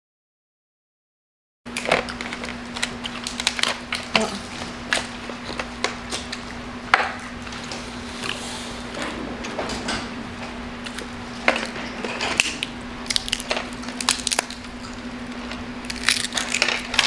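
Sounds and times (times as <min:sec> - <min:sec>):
crab shells cracking: 0:01.7 - 0:04.2, 0:12.3 - 0:17.0
low hum: 0:04.4 - 0:17.0.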